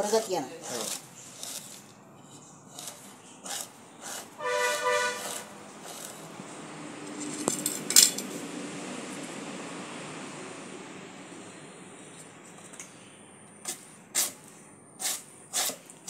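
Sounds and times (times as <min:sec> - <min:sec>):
stick scraping leaves on wood: 0:00.0 - 0:07.9, 0:13.6 - 0:15.9
honk-like tone: 0:04.4 - 0:05.5.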